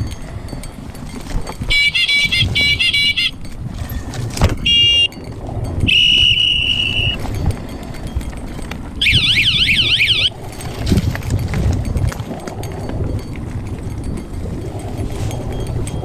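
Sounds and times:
bike rolling on rough trail: 0.0s - 16.0s
short high beeps: 4.6s - 5.2s, 5.9s - 7.2s, 9.0s - 10.3s
fast warbling tone: 9.0s - 10.3s
steady high tone: 9.0s - 10.4s.

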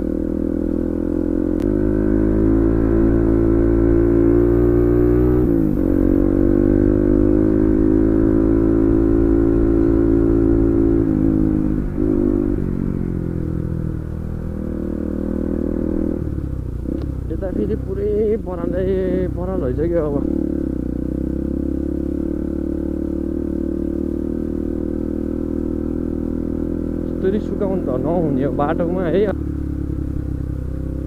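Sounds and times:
motorcycle engine running loud: 0.0s - 31.0s.

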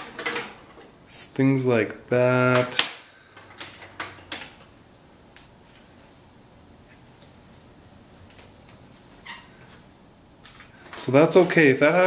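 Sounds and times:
faint rubbing on metal foil: 4.7s - 11.9s.

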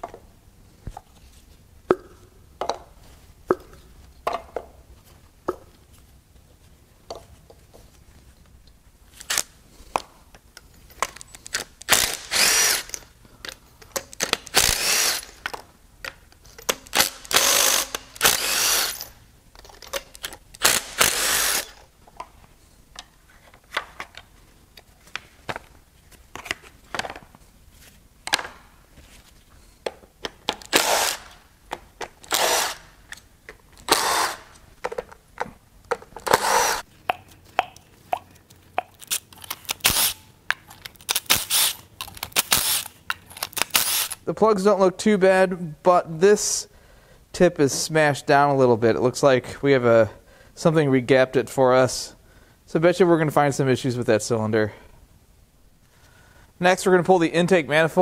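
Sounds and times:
clicks and clatter of parts: 7.1s - 27.4s, 29.8s - 44.2s.

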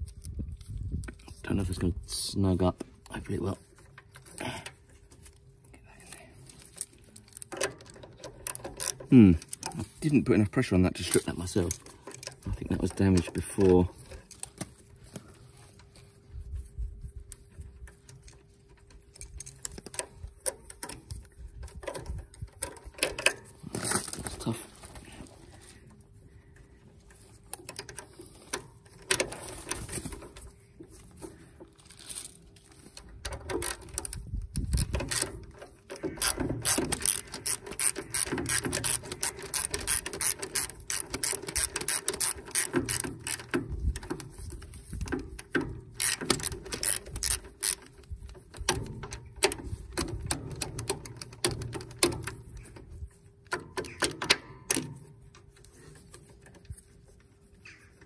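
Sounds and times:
socket ratchet clicking: 33.2s - 52.8s, 53.4s - 56.1s.

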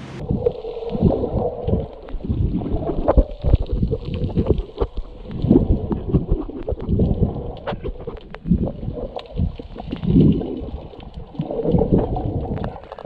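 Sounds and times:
muffled water sloshing and gurgling: 0.0s - 13.0s.

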